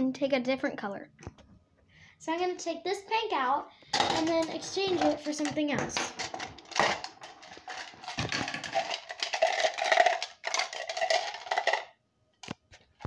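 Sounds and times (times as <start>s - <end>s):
plastic markers rattling in metal pail: 4.0s - 12.0s.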